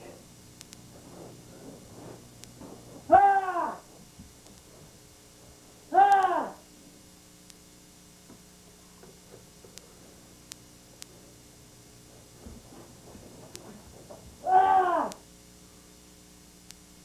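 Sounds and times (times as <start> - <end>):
faint ticks: 0.6 - 0.8, 2.4 - 2.6, 7.4 - 7.7, 8.3 - 11.2, 16.6 - 16.9
uniform rustling: 0.9 - 3.1, 12.0 - 14.4
bare feet shuffling on mat: 0.9 - 5.8, 12.0 - 14.5
man shouting: 3.1 - 3.9, 5.9 - 6.6, 14.4 - 15.2.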